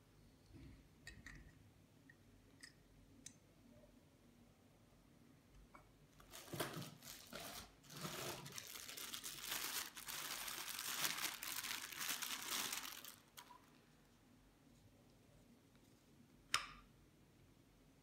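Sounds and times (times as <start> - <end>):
plastic bag crinkling: 6.2 - 13.8.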